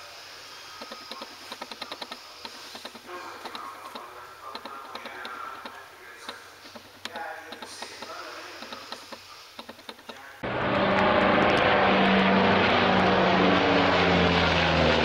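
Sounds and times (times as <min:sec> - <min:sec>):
propeller aircraft engine: 0:00.2 - 0:15.0
light clicks: 0:00.8 - 0:10.3.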